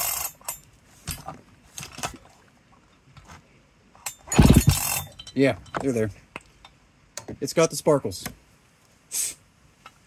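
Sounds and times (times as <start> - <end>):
starter clicks and rattles: 4.0 - 5.8.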